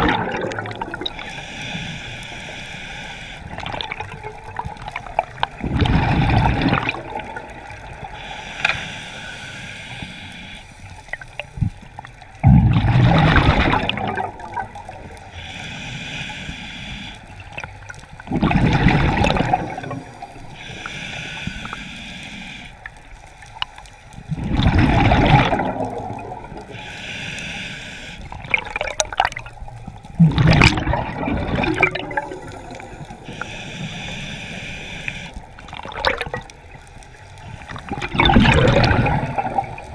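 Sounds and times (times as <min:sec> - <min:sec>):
exhaled bubbles rushing: 0:00.0 - 0:01.2, 0:03.5 - 0:07.7, 0:12.4 - 0:15.2, 0:17.5 - 0:20.4, 0:24.3 - 0:26.7, 0:28.3 - 0:33.2, 0:35.6 - 0:36.5, 0:37.6 - 0:39.9
regulator inhale hiss: 0:01.0 - 0:03.8, 0:07.8 - 0:12.0, 0:15.0 - 0:18.0, 0:19.4 - 0:24.2, 0:26.4 - 0:28.5, 0:32.3 - 0:35.7.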